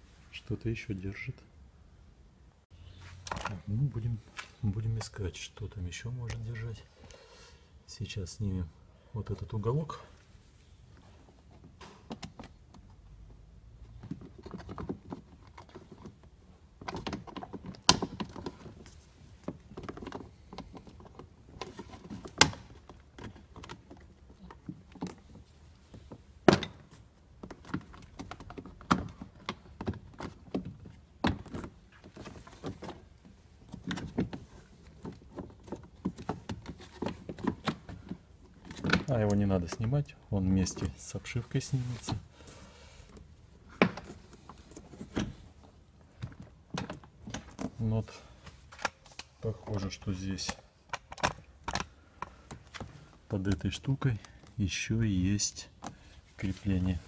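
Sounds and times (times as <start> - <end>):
plastic knocks and rubbing: 13.8 - 39.9.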